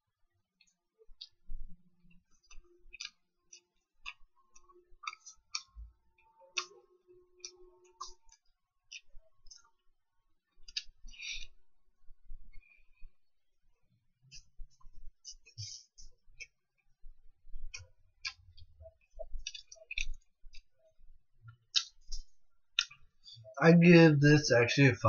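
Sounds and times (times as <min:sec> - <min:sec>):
person chewing food: 0:02.0 - 0:06.8, 0:07.4 - 0:09.8, 0:10.5 - 0:11.6, 0:12.5 - 0:13.2, 0:14.3 - 0:17.0, 0:17.6 - 0:20.7, 0:21.5 - 0:23.4.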